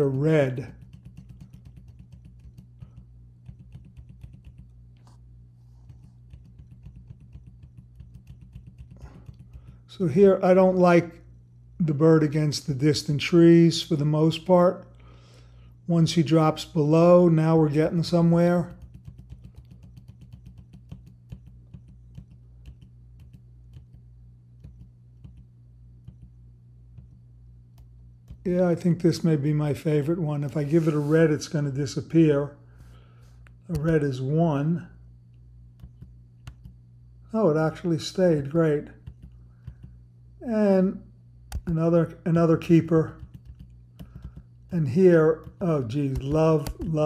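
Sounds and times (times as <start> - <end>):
low electrical hum: 0.0 - 47.0
computer keyboard keys tapping: 0.6 - 4.8, 5.8 - 9.9, 18.7 - 24.0, 24.6 - 27.2, 35.8 - 36.8, 39.0 - 39.9, 43.1 - 44.5.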